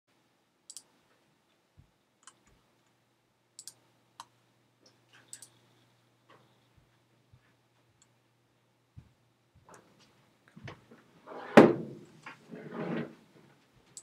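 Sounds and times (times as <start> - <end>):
faint steady hum: 0.1 - 14.0
computer mouse clicks: 0.7 - 0.9, 2.2 - 3.0, 3.6 - 5.7.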